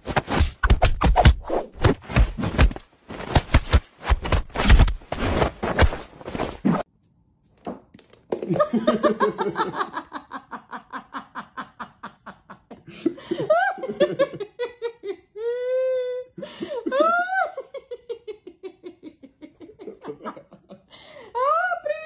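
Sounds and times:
scuffling noise: 0.0s - 6.8s.

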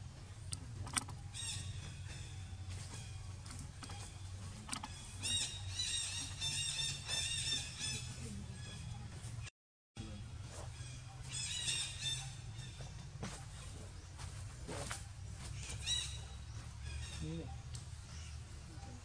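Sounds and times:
steady low rumble: 0.0s - 19.0s
high rapid chirping calls: 0.8s - 9.0s.

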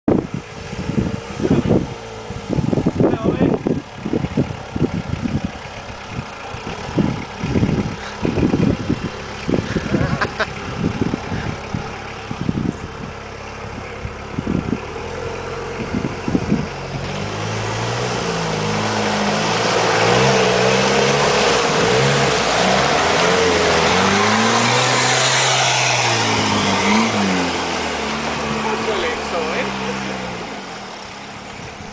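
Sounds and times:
vehicle engine running: 0.1s - 31.9s.

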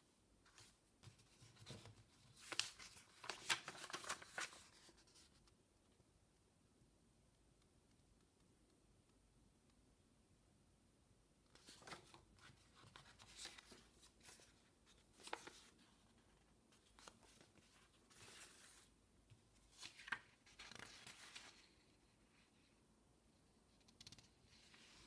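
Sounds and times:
paper pages rustling: 0.5s - 5.5s, 11.5s - 18.9s, 19.5s - 21.9s.

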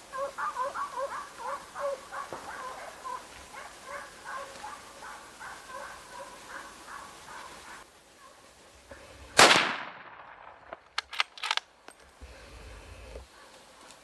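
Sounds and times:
dog barking rapidly: 0.1s - 8.4s.

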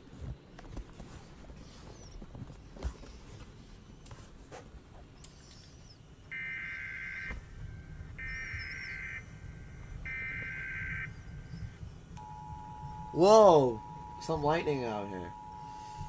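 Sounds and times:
warbling digital data tones: 5.7s - 16.0s.

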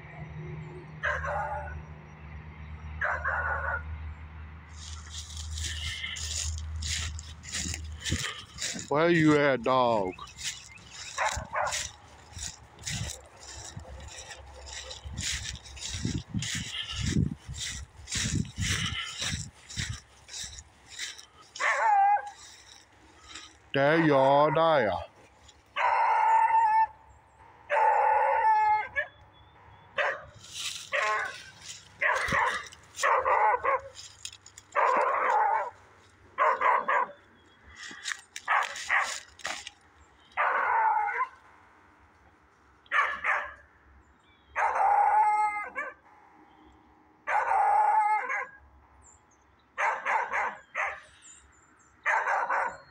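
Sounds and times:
dog barking: 1.0s - 1.8s, 3.0s - 3.9s, 10.4s - 15.4s, 21.1s - 22.6s, 25.8s - 26.9s, 27.7s - 29.1s, 30.0s - 34.1s, 34.7s - 35.8s, 36.4s - 37.2s, 38.5s - 39.6s, 40.4s - 41.4s, 42.9s - 43.6s, 44.6s - 46.0s, 47.3s - 48.6s, 49.8s - 51.1s, 52.0s - 52.9s.

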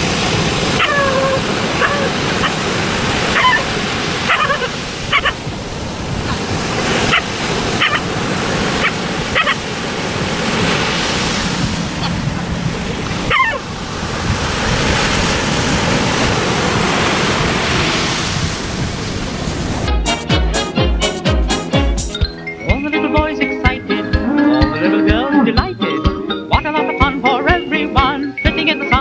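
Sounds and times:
surf breaking on a beach: 0.0s - 19.9s
dog yelping: 0.7s - 5.4s, 6.2s - 8.1s, 8.7s - 9.6s, 13.2s - 13.7s.

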